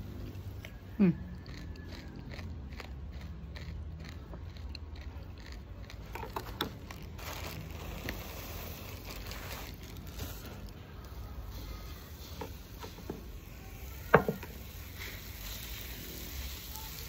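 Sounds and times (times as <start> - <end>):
plastic bag crinkling: 6.0 - 10.8
flour pouring and rustling: 7.1 - 10.8.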